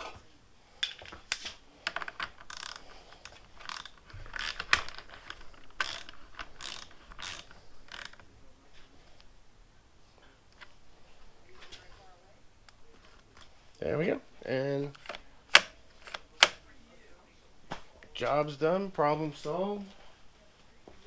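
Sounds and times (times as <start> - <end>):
metal parts and tool rattling: 1.8 - 8.2.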